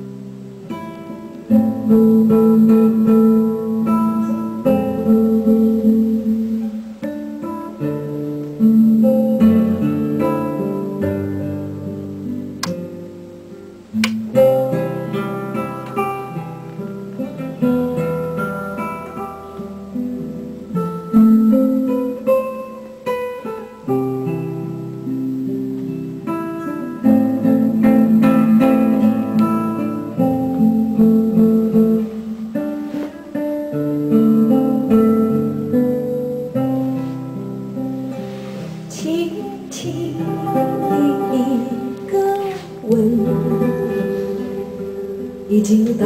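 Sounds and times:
acoustic guitar music over loudspeakers: 0.0 - 46.0.

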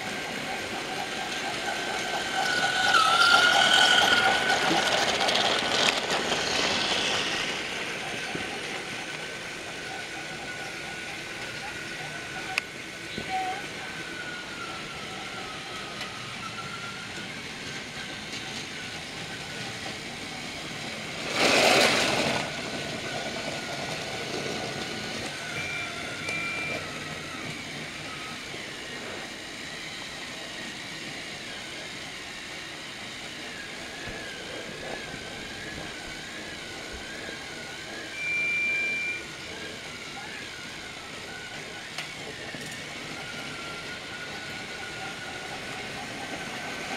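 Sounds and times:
toy train motor whirring: 0.0 - 46.9
short high beeps: 38.2 - 39.3.

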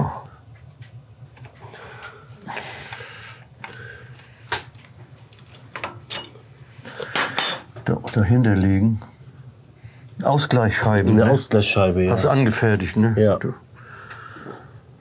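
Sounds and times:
faint steady hum: 0.0 - 15.0
metal parts scraping and rustling: 5.3 - 6.4.

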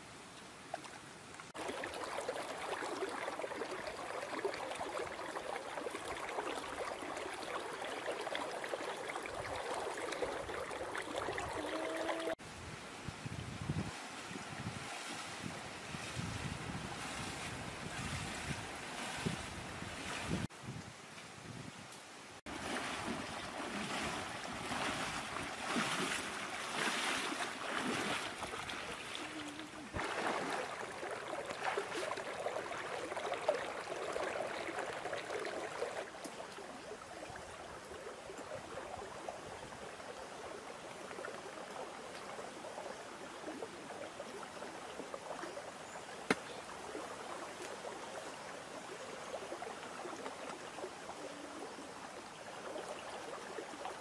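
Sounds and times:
running water splashing: 0.7 - 12.4, 22.5 - 48.9.

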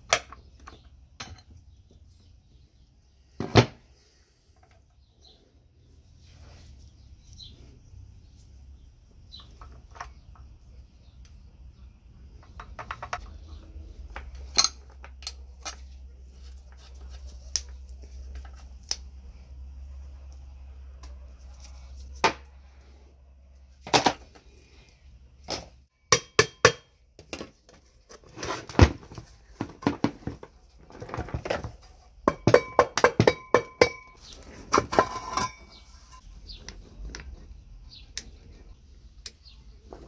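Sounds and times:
steel parts clinking and knocking: 14.1 - 16.0, 32.3 - 36.2.

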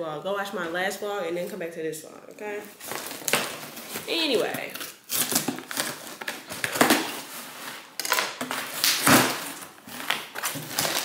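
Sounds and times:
knife cutting packing tape: 3.0 - 11.0.

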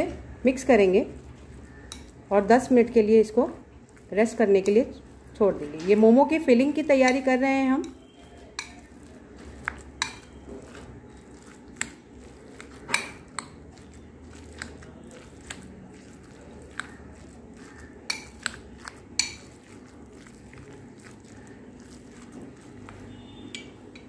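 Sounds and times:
metal spoon clinking on glass bowl: 10.0 - 10.4.

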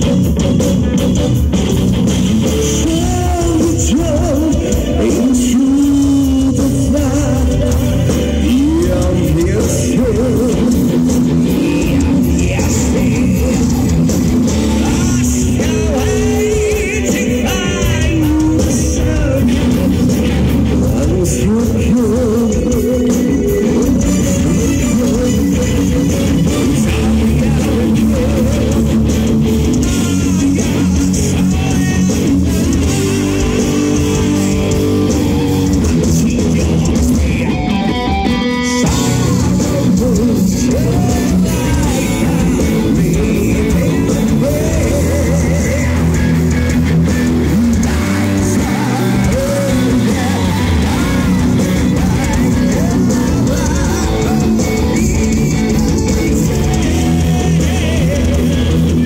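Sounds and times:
distorted electric guitars: 0.0 - 59.0
drums and cymbals: 0.0 - 59.0
metal band playing live: 0.0 - 59.0
person singing: 2.3 - 59.0.

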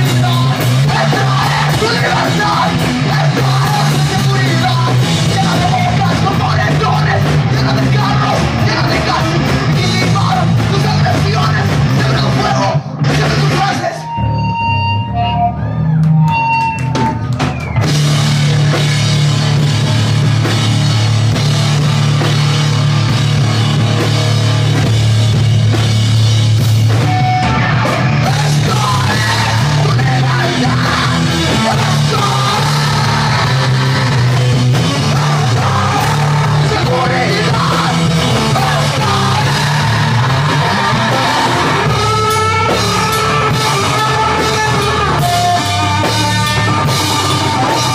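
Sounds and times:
person yelling vocals: 0.0 - 14.1
live rock band playing: 0.0 - 47.9.

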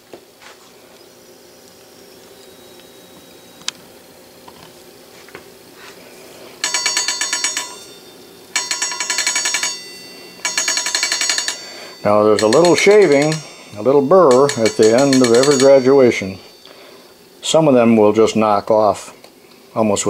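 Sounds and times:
faint hum: 0.0 - 20.0
electric bell ringing: 6.6 - 19.2.

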